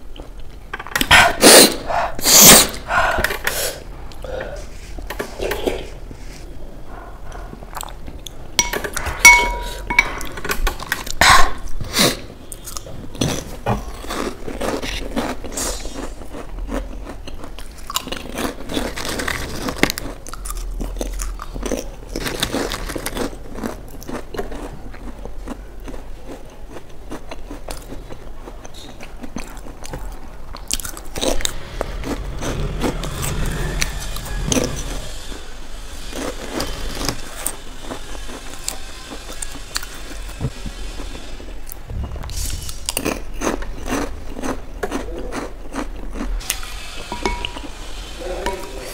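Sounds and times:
sharp ringing clinks: 8.6 - 10.2
chewing crunchy chips: 10.7 - 40.4, 42.6 - 46.8.

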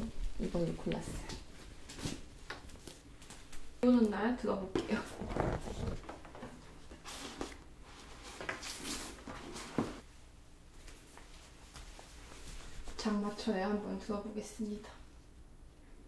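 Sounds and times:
towel rustling: 5.0 - 6.0.

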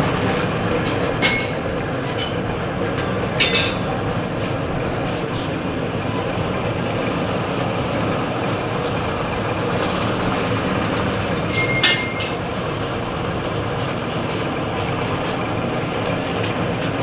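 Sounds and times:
workshop mechanical din: 0.0 - 17.0
struck steel clang: 11.5 - 12.5.

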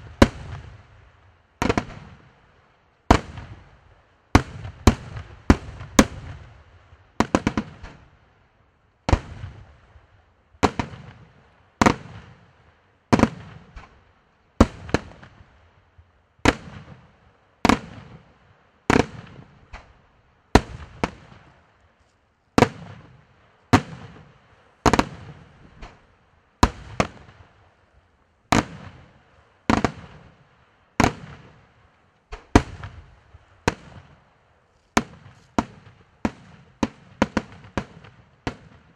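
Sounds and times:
firework pops and crackles: 1.6 - 2.2, 7.2 - 8.1, 9.1 - 9.7, 10.6 - 12.4, 13.1 - 14.0, 14.6 - 15.4, 18.9 - 20.0, 20.6 - 21.6, 22.6 - 27.5, 28.5 - 29.1, 29.7 - 30.4, 31.0 - 38.9.

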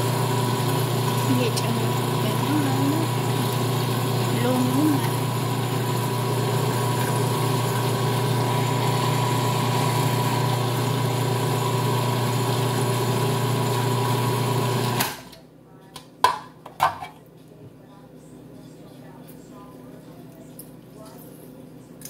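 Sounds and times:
food processor motor chopping: 0.0 - 15.3.

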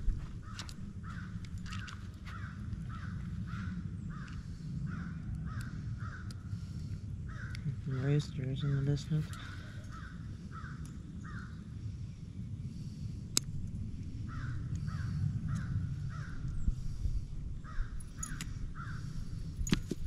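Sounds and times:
low outdoor rumble: 0.0 - 20.0
crows cawing: 0.2 - 11.7, 14.2 - 16.5, 17.6 - 19.4.

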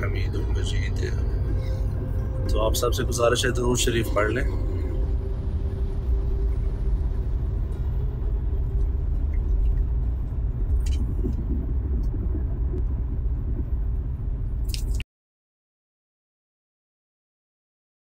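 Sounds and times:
car driving on wet road: 4.6 - 14.6.

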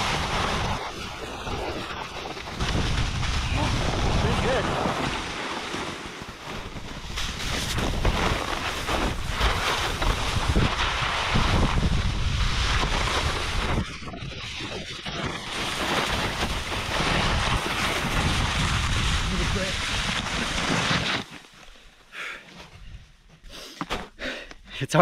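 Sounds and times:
wind buffeting microphone: 0.0 - 5.3, 6.7 - 14.9, 16.1 - 20.6
board sliding across snow: 0.0 - 22.9.

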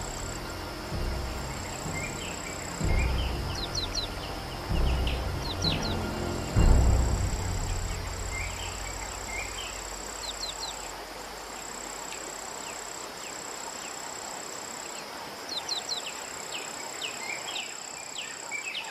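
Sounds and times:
steady high-pitched drone: 0.0 - 11.6
low hum: 0.0 - 12.3
birds chirping: 0.0 - 14.2.

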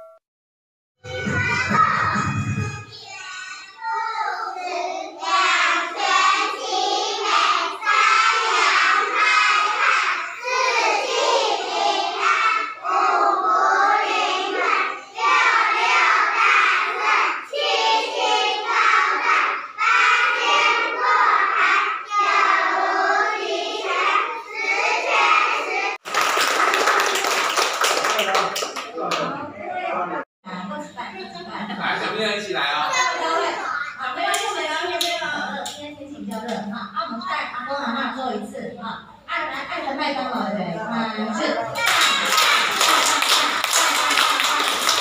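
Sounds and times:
children singing: 1.0 - 26.0
clapping: 26.0 - 29.3, 41.8 - 45.0.

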